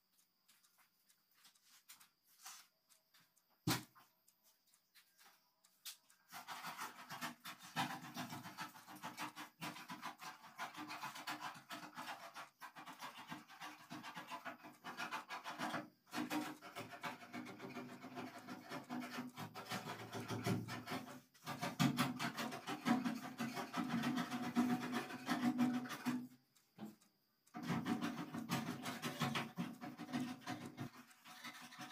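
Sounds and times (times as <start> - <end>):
paintbrush scratching on metal: 6.1 - 31.9.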